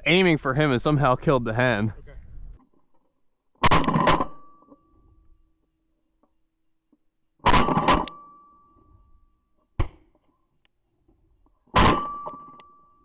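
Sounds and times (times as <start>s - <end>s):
shotgun shots: 7.5s - 8.0s.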